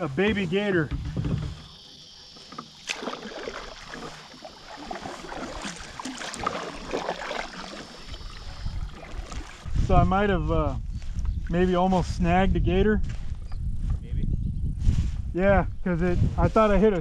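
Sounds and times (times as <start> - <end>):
paddle splashing through water: 0.2 - 9.9.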